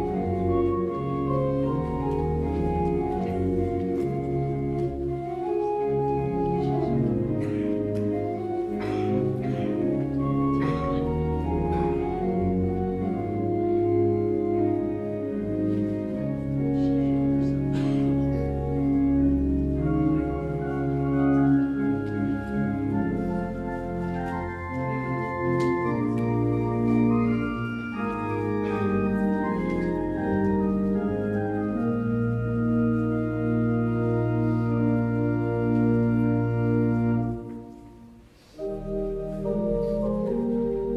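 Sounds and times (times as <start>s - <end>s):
church organ playing chords: 0.0s - 40.9s.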